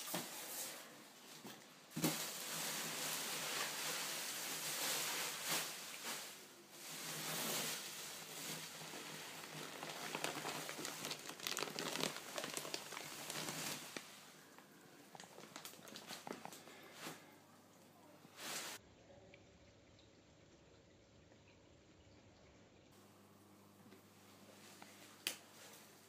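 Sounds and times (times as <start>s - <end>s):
plastic bags crinkling: 2.0s - 17.3s.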